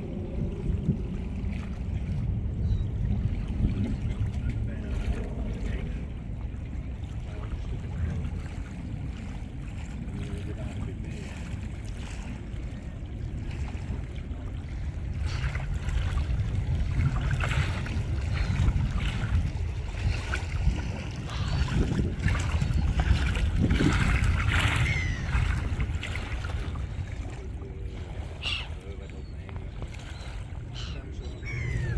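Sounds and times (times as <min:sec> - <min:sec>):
wind rumbling on microphone: 0:00.0 - 0:31.9.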